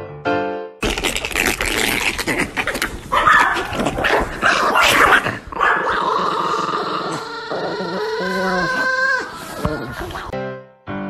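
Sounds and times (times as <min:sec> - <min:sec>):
small dog yipping and whining: 0:03.1 - 0:05.0.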